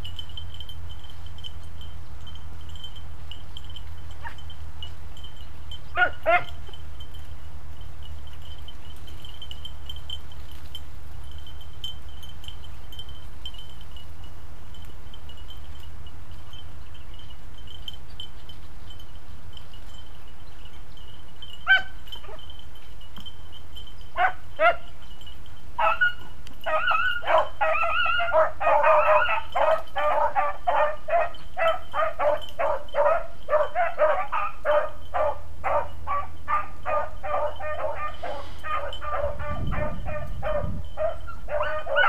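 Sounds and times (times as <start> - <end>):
dogs baying: 4.2 - 4.5, 5.9 - 6.7, 21.6 - 22.6, 24.2 - 25.0, 25.8 - 42.0
dogs barking: 5.9 - 6.6, 21.6 - 22.5, 24.2 - 24.9, 25.8 - 42.0
dog yelping: 6.0 - 6.6, 21.7 - 22.5, 24.2 - 24.9, 25.8 - 42.0.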